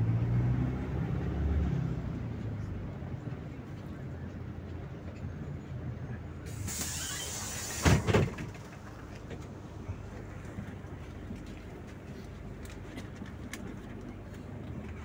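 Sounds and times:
bus diesel engine running: 0:00.0 - 0:15.0
air hiss: 0:06.5 - 0:08.2.

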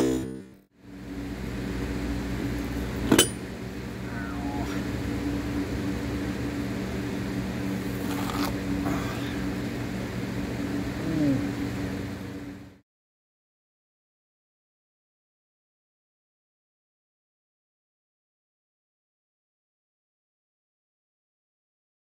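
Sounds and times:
machine humming: 0:00.0 - 0:12.8.

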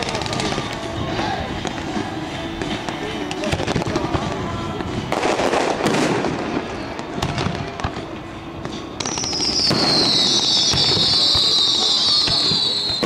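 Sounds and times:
fireworks crackling and popping: 0:00.0 - 0:13.0
high loud firework whistle: 0:08.7 - 0:13.0.

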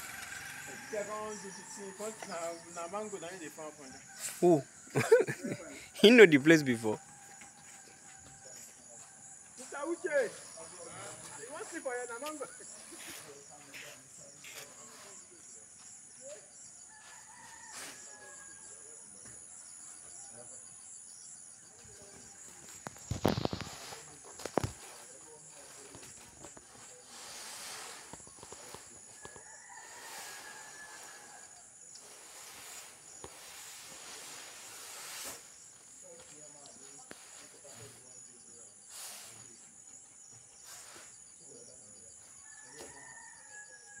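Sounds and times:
distant rooster crowing: 0:00.0 - 0:03.2, 0:06.0 - 0:09.8, 0:16.8 - 0:19.5, 0:26.8 - 0:34.4, 0:42.4 - 0:44.0
insects trilling: 0:00.0 - 0:44.0
insect chirring: 0:20.5 - 0:41.8.

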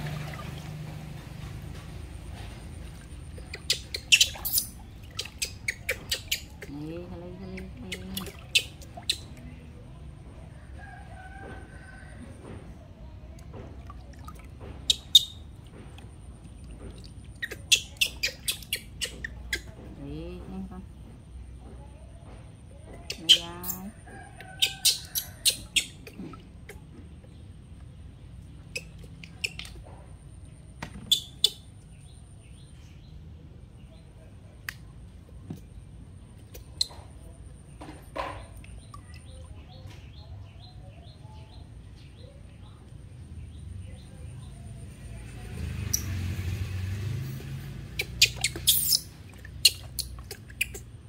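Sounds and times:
water splashing in plastic basin: 0:00.0 - 0:09.8, 0:11.5 - 0:21.0, 0:45.6 - 0:51.0.

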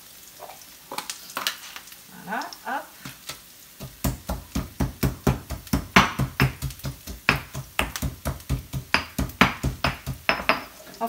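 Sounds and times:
stone pestle pounding in mortar: 0:03.8 - 0:10.7.

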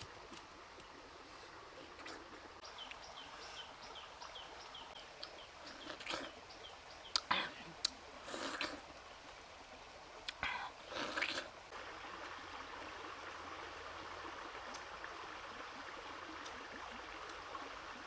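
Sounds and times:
small stream of juice running: 0:00.0 - 0:18.0
person biting and slurping fruit: 0:05.6 - 0:06.4, 0:08.2 - 0:08.8, 0:10.3 - 0:11.5.

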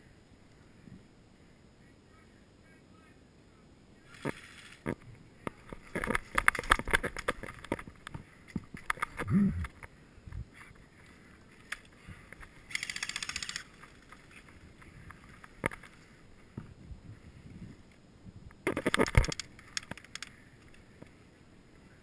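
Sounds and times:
airsoft gun firing rapid clicks: 0:12.7 - 0:13.8, 0:18.7 - 0:20.3.

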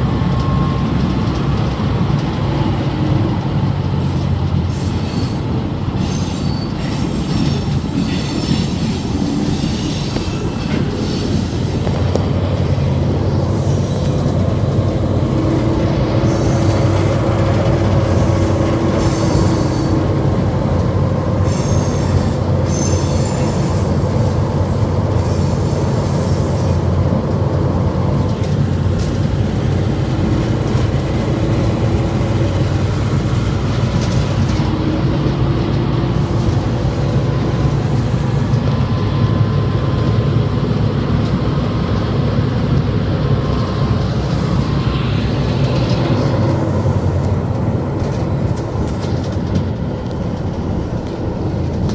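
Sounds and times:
locomotive engine hum: 0:00.0 - 0:51.9
wheels rumbling on rails: 0:00.0 - 0:51.9
high-pitched wheel squeal: 0:04.7 - 0:11.8, 0:17.9 - 0:20.2, 0:21.4 - 0:24.0.

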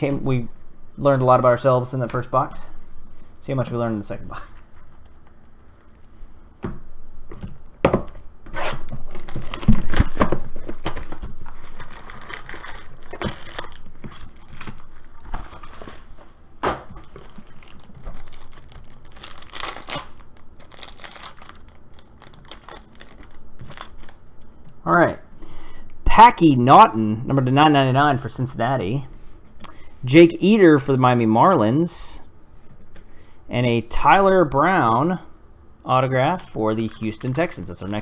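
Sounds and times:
foil packs rustling and tearing: 0:08.7 - 0:16.3, 0:16.9 - 0:24.2.

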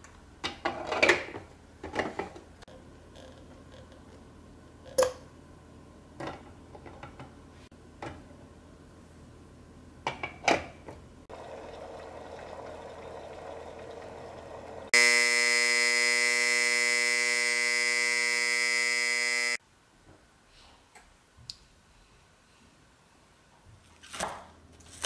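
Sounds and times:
egg cooker hissing: 0:11.3 - 0:19.6
loud steady buzzer tone: 0:14.9 - 0:19.6.

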